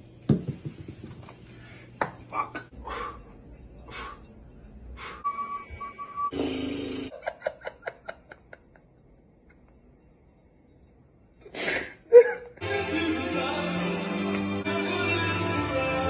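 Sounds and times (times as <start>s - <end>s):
man laughing: 7.1s - 9.7s.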